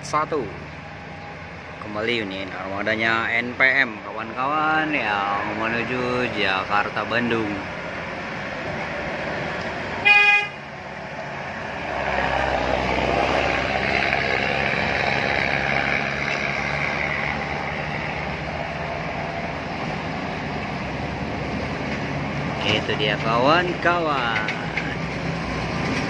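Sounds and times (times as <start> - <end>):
heavy vehicle engine drone: 0.0 - 26.0
traffic engine noise: 0.0 - 26.0
vehicle horn toot: 10.0 - 10.7.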